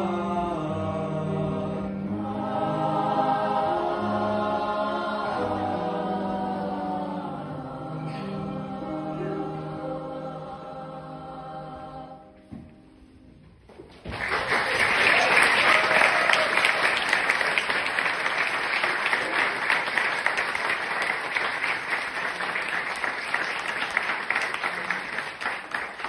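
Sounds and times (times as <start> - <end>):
audience applauding: 14.0 - 26.0.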